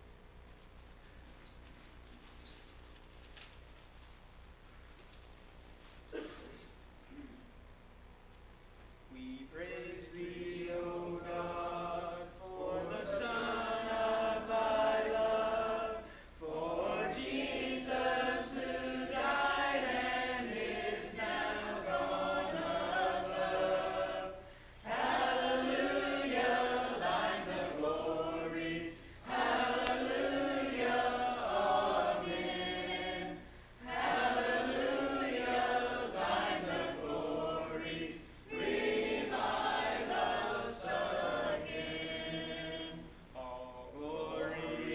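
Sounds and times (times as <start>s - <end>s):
congregation singing a hymn: 9.2s - 44.9s.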